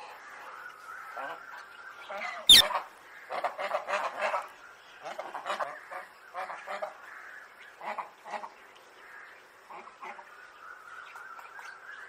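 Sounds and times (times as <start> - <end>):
parakeets squawking: 2.4 - 2.8.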